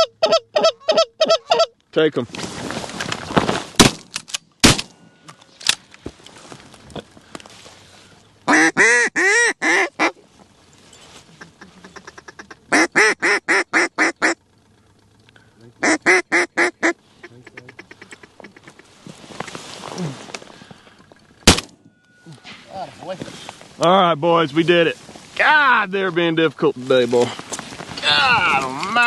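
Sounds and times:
duck call quacks: 0:00.0 - 0:01.8, 0:08.5 - 0:10.2, 0:11.4 - 0:14.4, 0:15.8 - 0:18.9
shotgun shots: 0:03.8 - 0:05.0, 0:21.4 - 0:21.8.

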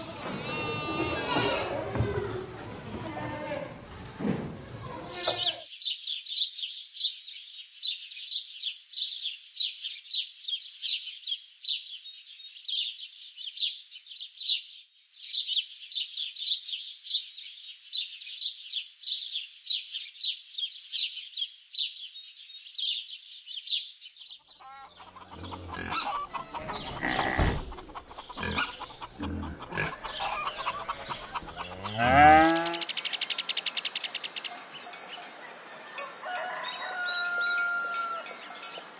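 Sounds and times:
birds chirping: 0:21.8 - 0:38.9
loud rising animal call: 0:25.2 - 0:32.9.

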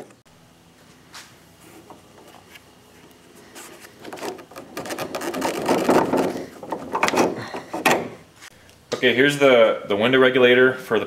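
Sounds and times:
hands scraping rubber and metal: 0:03.4 - 0:08.1.

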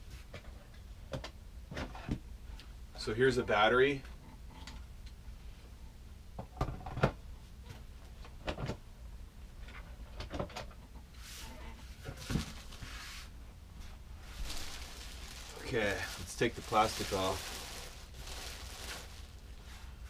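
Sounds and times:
plastic wrapping crinkling: 0:12.2 - 0:12.9, 0:14.2 - 0:19.8.

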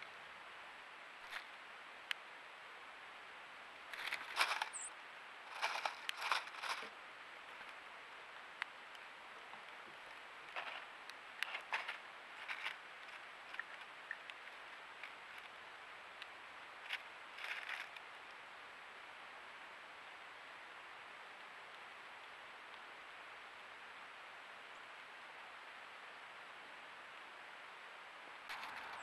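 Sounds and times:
steady hiss: 0:00.0 - 0:29.0
birds pecking and rustling seed: 0:01.1 - 0:02.4, 0:03.7 - 0:19.2, 0:28.4 - 0:29.0.

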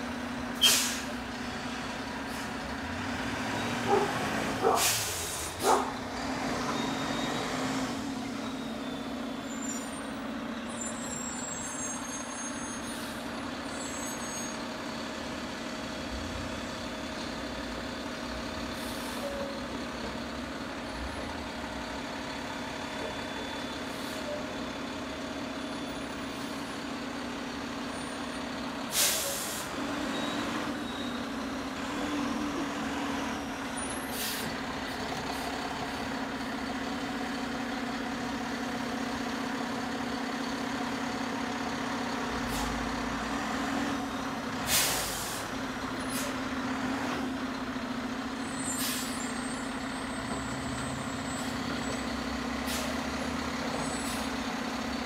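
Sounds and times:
truck engine droning: 0:00.0 - 0:55.0
air brake hisses: 0:00.6 - 0:01.1, 0:04.7 - 0:05.7, 0:28.9 - 0:29.7, 0:34.0 - 0:34.5, 0:44.6 - 0:45.5, 0:48.6 - 0:49.3, 0:52.6 - 0:53.0.

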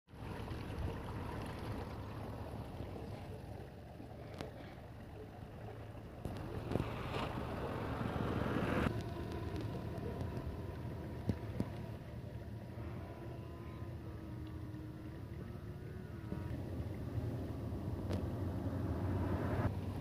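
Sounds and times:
vehicle engine running: 0:05.3 - 0:20.0.

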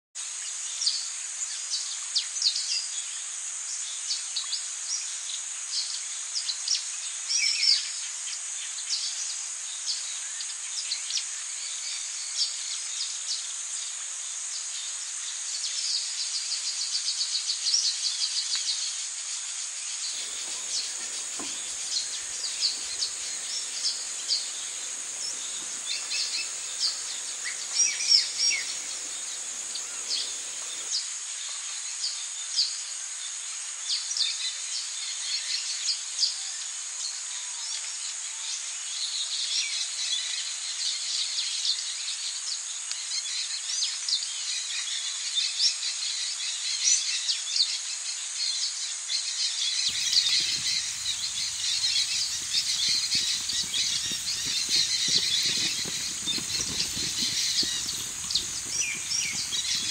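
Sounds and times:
insect drone: 0:20.2 - 0:30.9, 0:49.9 - 0:59.9
rapid bird trill: 0:20.2 - 0:30.9, 0:49.9 - 0:59.9
small birds chirping: 0:20.2 - 0:30.9, 0:49.9 - 0:59.9.

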